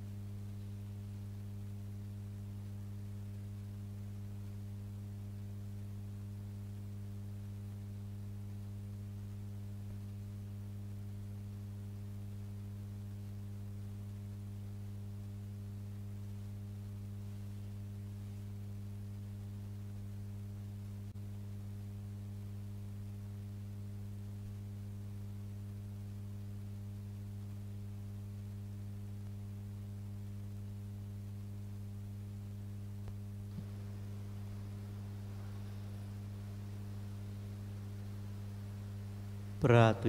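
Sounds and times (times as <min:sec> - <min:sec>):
electrical mains hum: 0:00.0 - 0:40.0.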